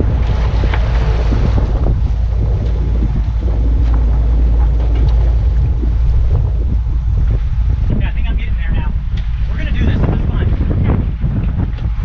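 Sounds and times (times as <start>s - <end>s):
waves splashing along hull: 0.0s - 12.0s
wind buffeting microphone: 0.0s - 12.0s.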